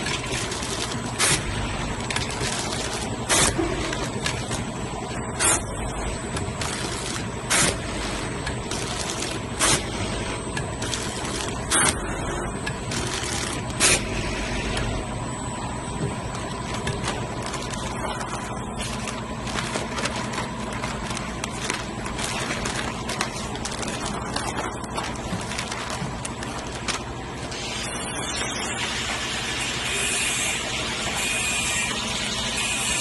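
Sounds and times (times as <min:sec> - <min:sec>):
faint constant whine: 0:00.0 - 0:33.0
packaging machine running: 0:00.0 - 0:33.0
plastic bags crinkling: 0:00.1 - 0:01.3, 0:02.0 - 0:04.6, 0:12.8 - 0:13.8, 0:16.3 - 0:27.5.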